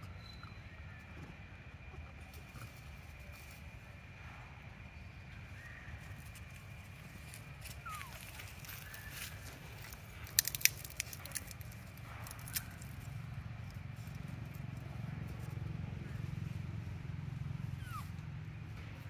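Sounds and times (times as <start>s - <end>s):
distant road traffic rumble: 0.0s - 19.0s
sharp crackling clicks: 9.8s - 13.0s.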